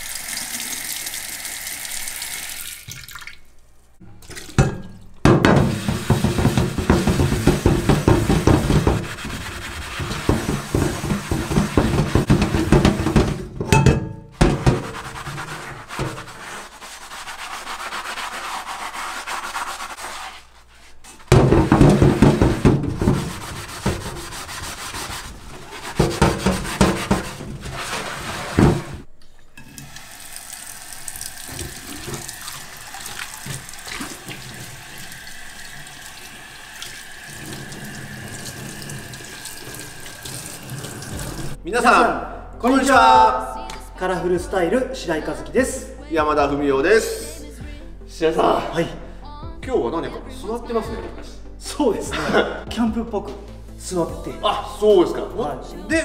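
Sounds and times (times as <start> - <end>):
tap water running over pan: 0.0 - 3.4, 4.2 - 13.2, 29.8 - 41.6
sponge scrubbing a frying pan: 5.4 - 13.6, 14.4 - 29.1, 31.4 - 41.6.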